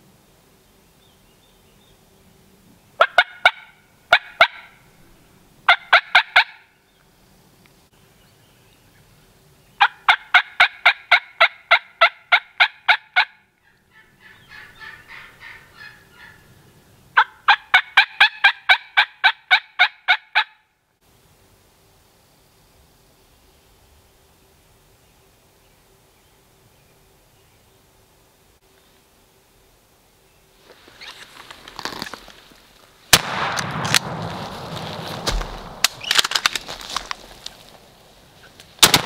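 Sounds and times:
turkey calling: 0:03.0 - 0:04.8, 0:05.7 - 0:06.7, 0:09.8 - 0:16.6, 0:17.2 - 0:20.6.

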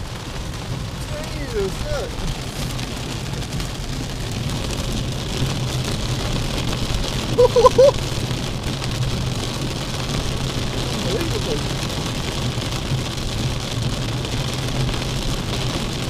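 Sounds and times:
heavy rain on car roof: 0:00.0 - 0:16.0
wavering voice: 0:07.4 - 0:08.0, 0:11.0 - 0:11.7.

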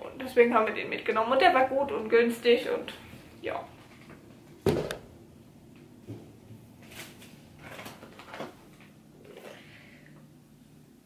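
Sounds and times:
thump: 0:04.6 - 0:05.0
items set down knocking and rustling: 0:04.6 - 0:05.1.

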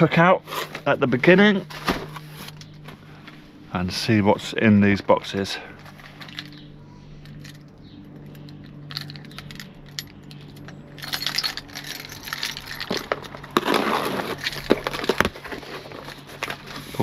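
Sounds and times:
low steady hum: 0:00.0 - 0:17.0
rummaging in cardboard box: 0:11.1 - 0:17.0.

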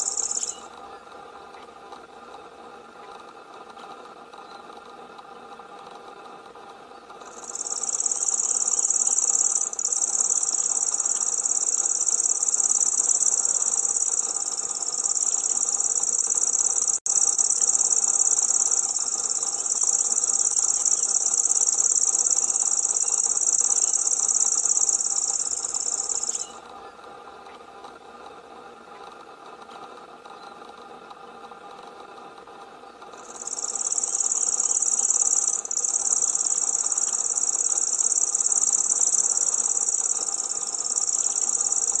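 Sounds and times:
bird reeling high trill: 0:00.0 - 0:00.7, 0:07.3 - 0:26.6, 0:33.2 - 0:42.0.

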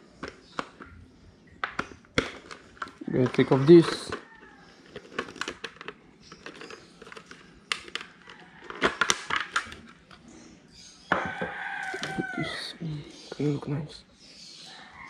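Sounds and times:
plastic helmet visor clicks and rattles: 0:01.6 - 0:10.2
rooster crowing: 0:11.1 - 0:12.8.

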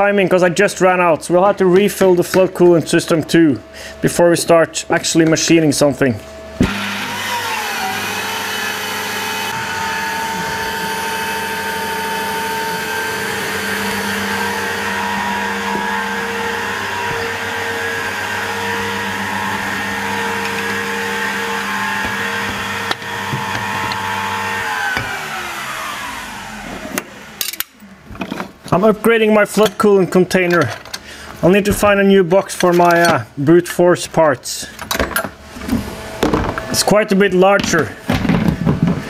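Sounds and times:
milling machine motor whine: 0:01.6 - 0:28.1.

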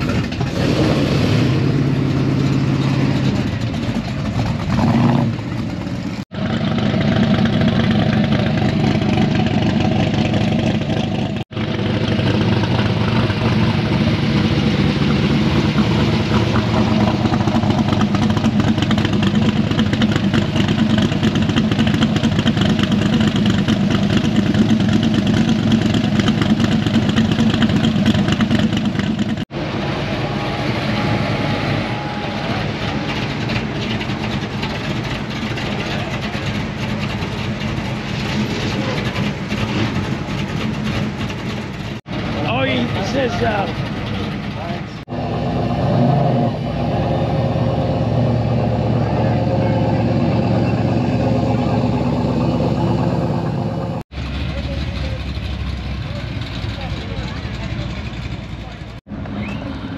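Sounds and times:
loud car engines running: 0:00.0 - 0:59.9.

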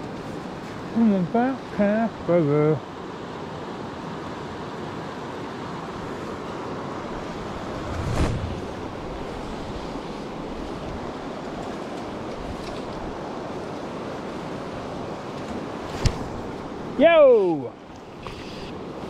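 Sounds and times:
river rushing over stones: 0:02.5 - 0:17.7
short whoosh: 0:07.4 - 0:09.2.

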